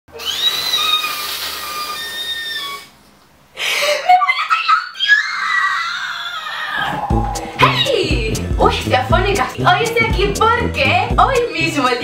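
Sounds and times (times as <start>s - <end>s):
woman giggling squeal: 3.8s - 7.0s
woman squealing: 4.0s - 8.0s.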